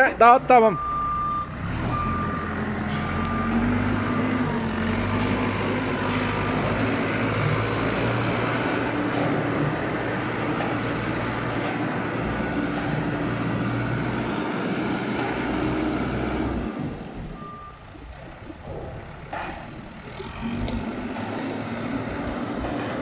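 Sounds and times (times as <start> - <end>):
diesel engine under load: 0.0 - 23.0
reversing alarm beeps: 0.7 - 4.5, 17.4 - 17.9.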